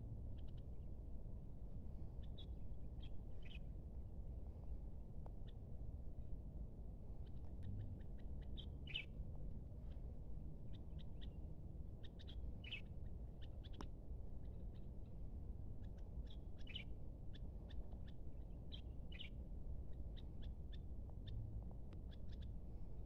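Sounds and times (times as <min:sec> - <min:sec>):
steady low rumble: 0:05.9 - 0:23.0
small birds chirping: 0:07.3 - 0:09.2, 0:12.0 - 0:15.0, 0:15.8 - 0:22.6.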